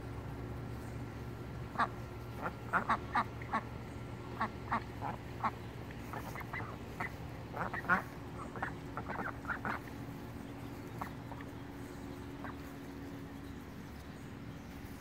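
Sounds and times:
ducks quacking: 1.6 - 13.2.

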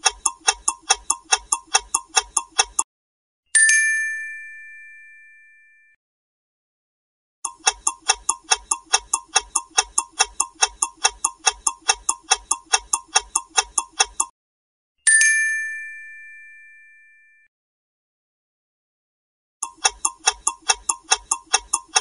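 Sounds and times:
clock ticking: 0.0 - 2.9, 7.5 - 14.3, 19.6 - 22.0
bright chime ding: 3.6 - 5.9, 15.1 - 17.4.

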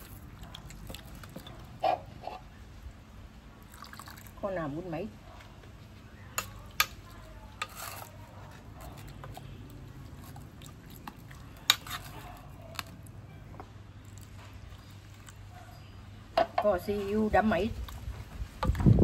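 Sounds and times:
spoon stirring wet sauce: 0.0 - 2.6, 5.5 - 13.1.

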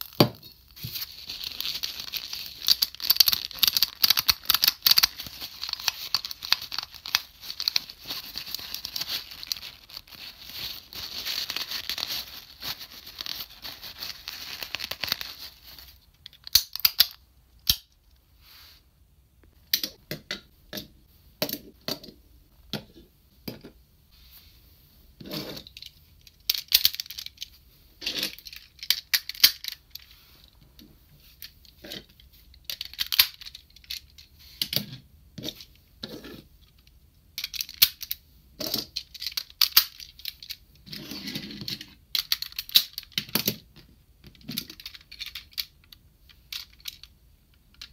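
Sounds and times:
plastic toy parts clicking: 2.1 - 9.8, 16.2 - 18.0, 25.6 - 27.5, 28.3 - 30.0, 32.6 - 34.9, 36.8 - 38.2, 38.8 - 40.6, 41.8 - 43.6, 44.3 - 47.9
paper towel rustling on plastic: 7.5 - 15.8.

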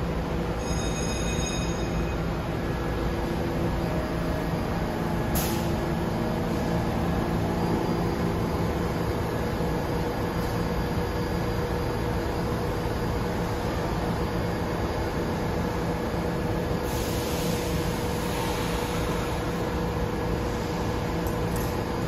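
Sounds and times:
subway train equipment humming: 0.0 - 22.0
hiss of air: 5.3 - 5.8, 16.8 - 19.7.

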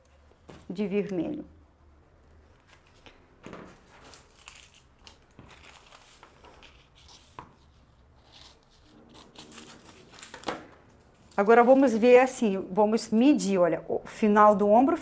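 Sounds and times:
paper rustling and crinkling: 2.5 - 12.4.

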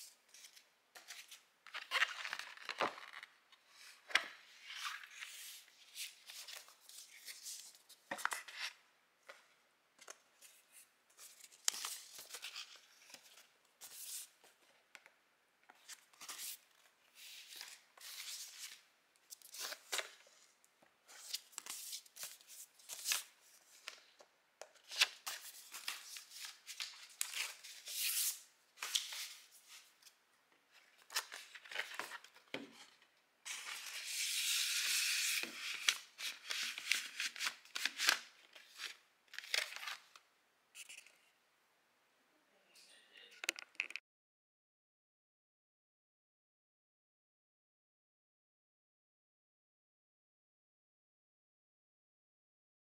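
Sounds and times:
record sleeve rustling: 0.3 - 9.4, 33.5 - 40.2.

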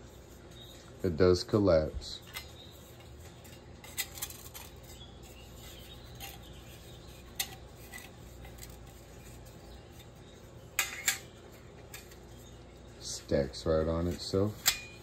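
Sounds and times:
metal parts rubbing and scraping: 1.9 - 15.0.

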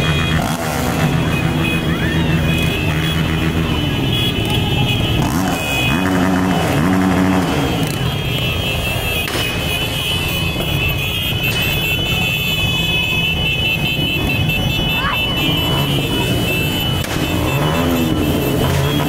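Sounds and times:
motorcycle engine revving: 0.0 - 19.0
motorcycles rolling past: 0.0 - 19.0.

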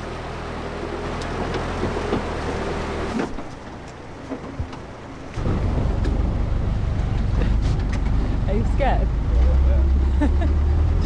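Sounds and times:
vehicle engine humming: 0.0 - 11.0
knocks and clatters: 3.1 - 8.4.

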